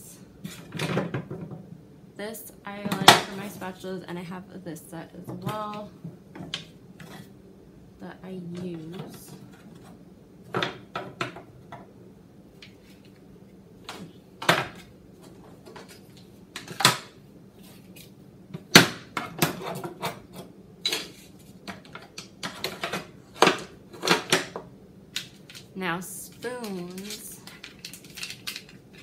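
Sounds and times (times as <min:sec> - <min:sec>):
plastic utensils clattering in drawer: 0:20.9 - 0:24.6, 0:26.7 - 0:29.0.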